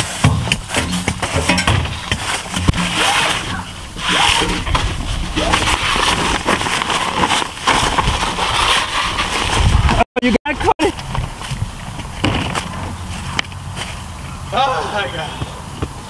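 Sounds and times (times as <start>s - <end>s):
plastic sheeting crinkling: 2.0s - 10.0s.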